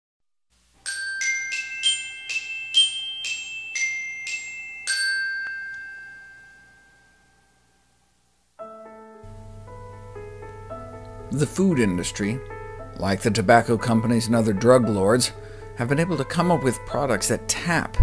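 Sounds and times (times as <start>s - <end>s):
glockenspiel jingle: 0.8s - 7.9s.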